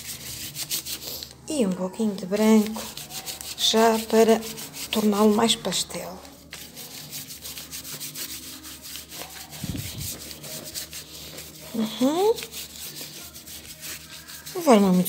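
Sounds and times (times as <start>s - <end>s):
paintbrush scrubbing on paper: 0.0s - 1.3s, 2.4s - 15.0s.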